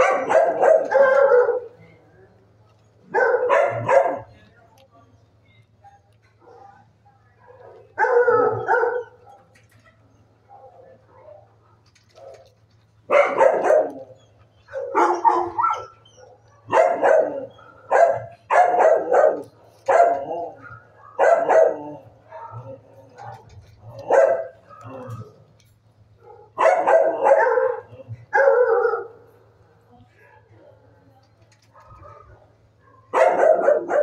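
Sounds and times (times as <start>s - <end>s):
dogs barking: 0.0s - 1.8s, 3.0s - 4.4s, 6.4s - 9.6s, 10.4s - 25.5s, 26.1s - 29.5s, 31.6s - 34.0s
faint low hum: 0.0s - 34.0s.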